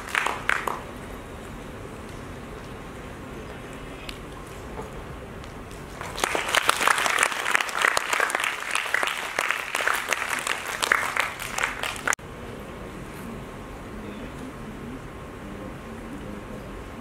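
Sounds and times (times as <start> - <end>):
audience applauding: 0.0 - 1.0, 5.7 - 12.2.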